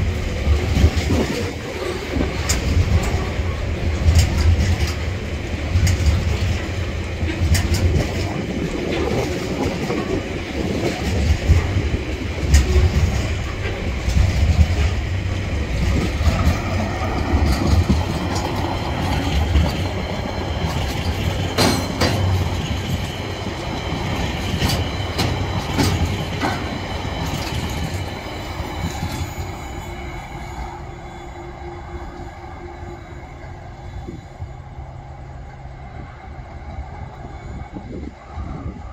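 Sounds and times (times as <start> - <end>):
wheels clacking over rail joints: 0.0 - 30.4
freight train rumbling past: 0.0 - 38.9
faint high wheel squeal: 16.4 - 38.9.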